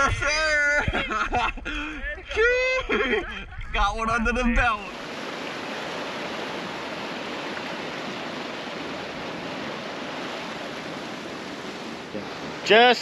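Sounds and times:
surf washing over rocks: 4.5 - 13.0.

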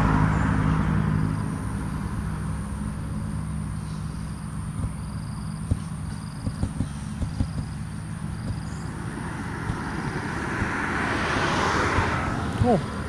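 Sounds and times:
low steady hum: 0.0 - 13.0
road vehicle approaching: 0.0 - 13.0
wind thumps on microphone: 4.7 - 13.0.

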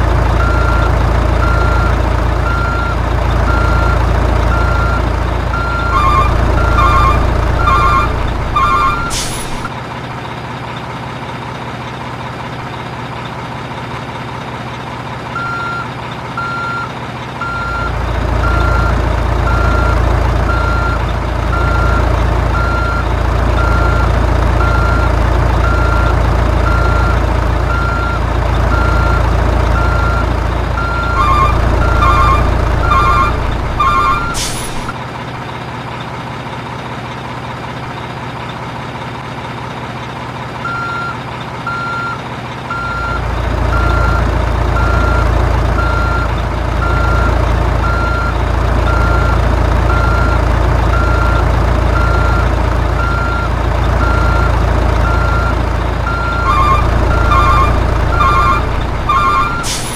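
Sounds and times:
diesel engine hum: 0.0 - 59.9
reversing alarm beeping: 0.4 - 9.7, 15.4 - 35.0, 40.6 - 59.9
quick beep pattern: 4.5 - 9.7, 30.8 - 34.9, 53.0 - 59.9.

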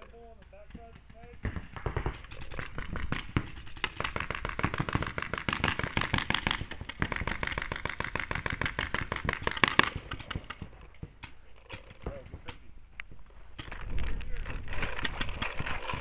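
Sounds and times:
paintball markers firing: 0.0 - 16.0.

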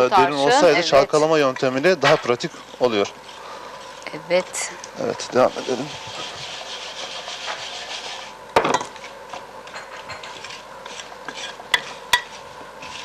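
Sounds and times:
scraping in a steel bowl: 2.2 - 8.4, 9.0 - 13.0.

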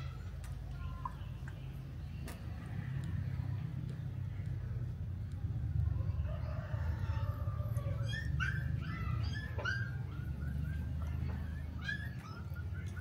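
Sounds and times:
steady low rumble: 0.1 - 9.3
dog whining and whimpering: 7.8 - 13.0.

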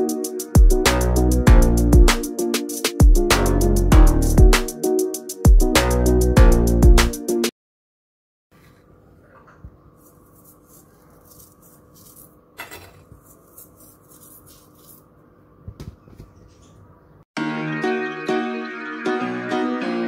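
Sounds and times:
fingers rubbing bread crumbs: 9.9 - 15.2.

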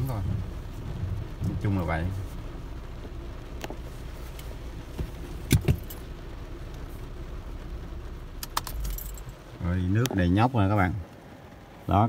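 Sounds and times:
car engine low rumble inside cabin: 0.0 - 12.0.

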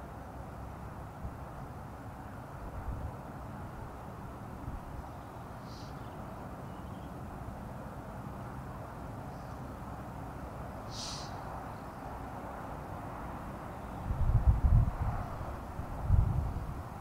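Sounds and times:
wind buffeting microphone: 13.9 - 17.0.

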